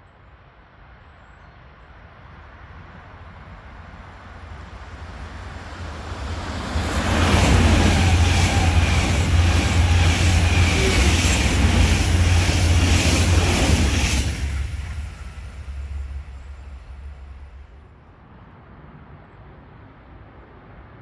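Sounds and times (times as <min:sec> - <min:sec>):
train passing at speed: 0:00.4 - 0:21.0.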